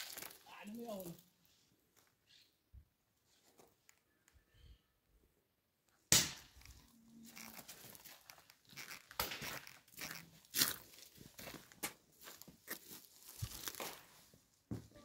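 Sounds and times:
footsteps crunching dry leaves: 0.0s - 1.2s, 6.7s - 14.4s.

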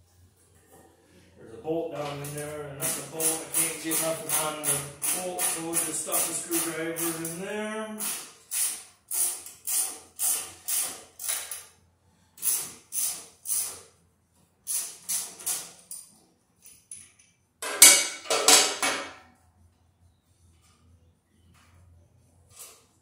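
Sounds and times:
ratchet wrench clicking: 8.0s - 11.7s, 12.4s - 13.9s, 14.6s - 17.2s.

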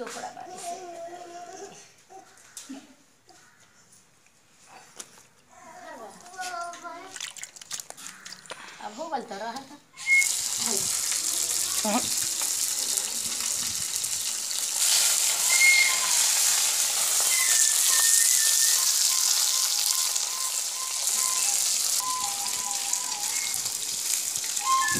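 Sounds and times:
fish sizzling in hot oil: 10.0s - 24.9s.

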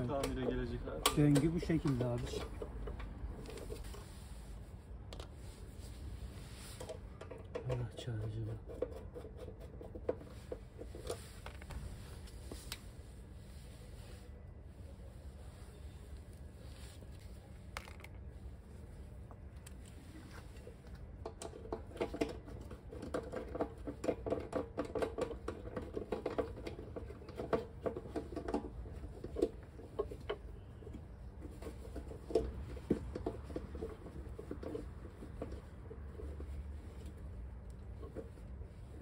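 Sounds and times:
hands clicking and tapping fittings: 0.0s - 3.7s.

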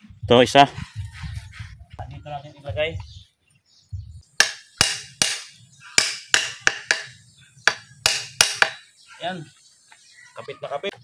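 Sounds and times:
hammer striking metal hinge: 4.4s - 8.8s.

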